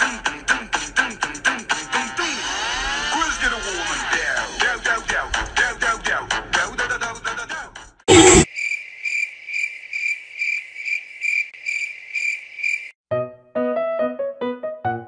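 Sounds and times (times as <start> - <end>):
cricket chirping: 8.2 - 13.0
piano music: 13.1 - 15.0.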